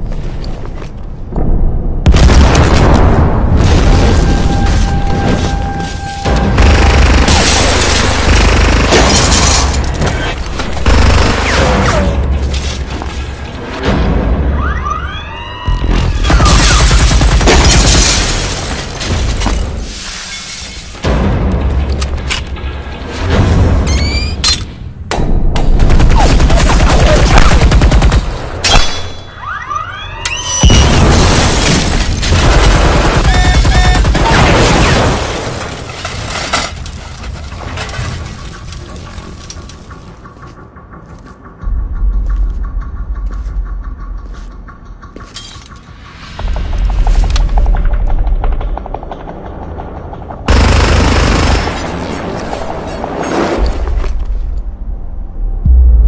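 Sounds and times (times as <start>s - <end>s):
grenade explosions: 1.2s - 14.6s, 15.7s - 20.0s, 20.9s - 29.4s, 30.4s - 40.1s, 46.8s - 54.4s.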